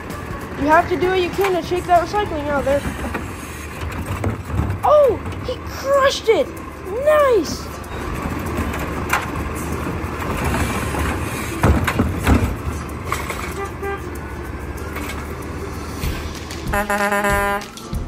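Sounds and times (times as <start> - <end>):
cart thumping on curb: 0.0 - 6.5, 7.6 - 18.0
garbage truck running: 0.0 - 18.0.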